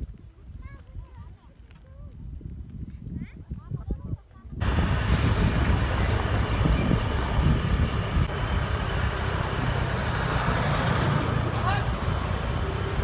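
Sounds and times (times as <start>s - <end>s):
wind on microphone: 0.0s - 11.2s
vehicle rumble on road: 4.6s - 13.0s.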